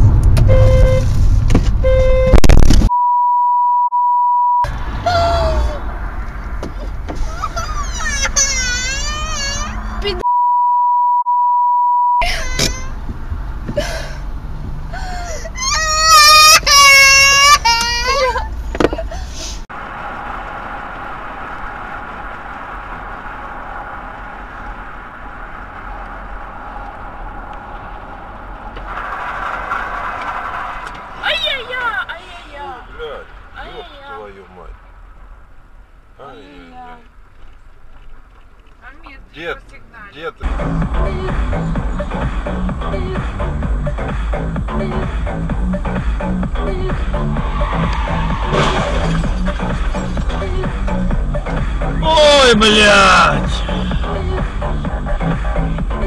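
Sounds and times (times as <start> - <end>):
in-car road noise: 0.0 - 56.0
censor bleep: 0.4 - 1.1, 1.8 - 4.7, 10.2 - 12.2
short tonal honk: 0.4 - 1.2, 1.8 - 2.7.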